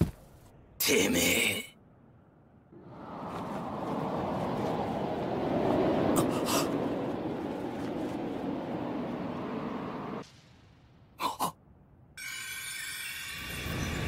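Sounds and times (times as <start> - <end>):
wind-like rumble: 1.8 - 11.2.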